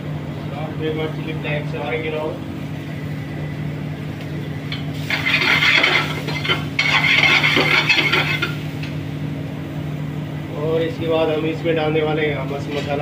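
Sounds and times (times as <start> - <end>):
steady low hum: 0.0 - 13.0
utensil scraping and clinking on a dish: 5.1 - 8.6.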